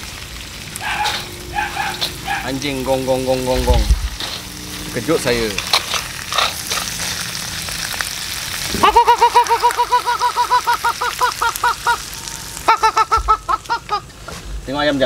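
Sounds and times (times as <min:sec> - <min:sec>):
seafood sizzling in a wok: 0:00.0 - 0:15.0
chicken calling rapidly: 0:00.8 - 0:02.6, 0:08.7 - 0:14.1.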